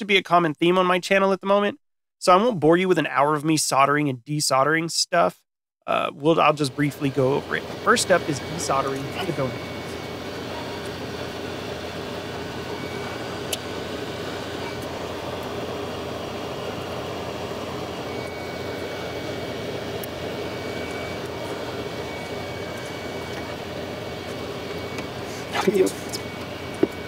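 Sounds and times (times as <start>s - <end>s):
faint high whine: 6.0s - 27.0s
hot-air gun blowing: 7.1s - 27.0s.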